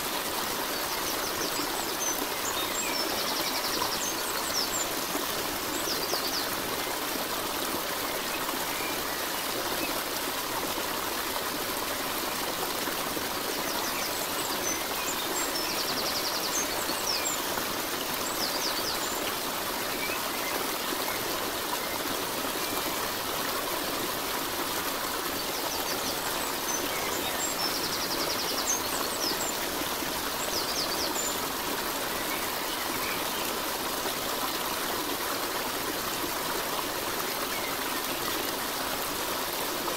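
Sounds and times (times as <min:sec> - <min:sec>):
stream flowing: 0:00.0 - 0:39.9.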